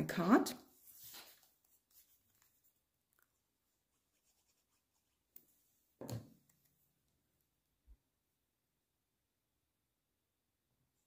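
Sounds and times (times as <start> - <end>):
paper rustling: 0.7 - 5.4.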